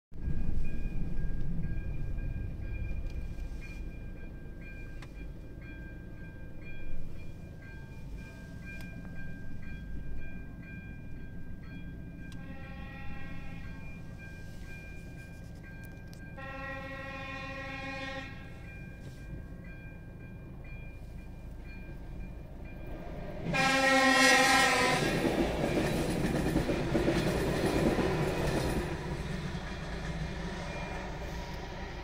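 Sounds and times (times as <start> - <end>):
level crossing warning ringing: 0.2 - 32.0
horn sounding: 12.3 - 13.9, 16.4 - 18.6, 23.5 - 25.2.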